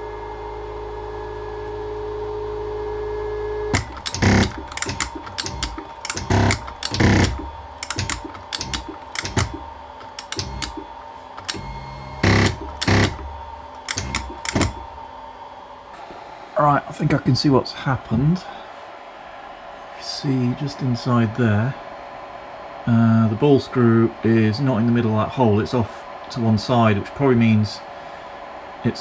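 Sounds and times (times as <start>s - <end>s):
stepper motor humming: 3.6s - 15.4s
jammed drive clicking and knocking: 3.7s - 14.9s.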